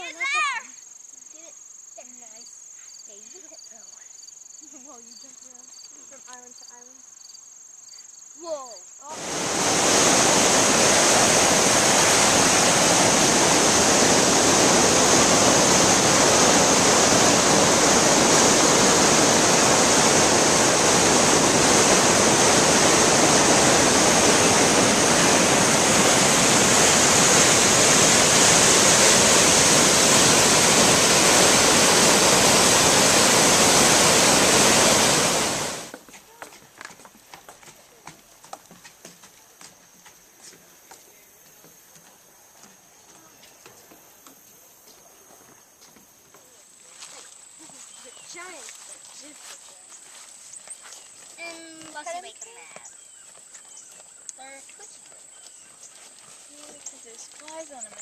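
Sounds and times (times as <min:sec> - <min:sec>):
water rushing from outlet tunnel: 0:09.1 - 0:36.0.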